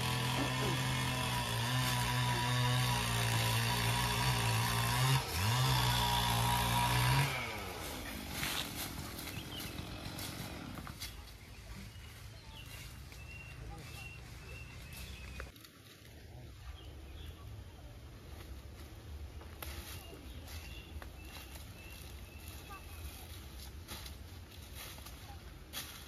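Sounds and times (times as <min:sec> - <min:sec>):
small engine running: 0:00.0 - 0:15.5.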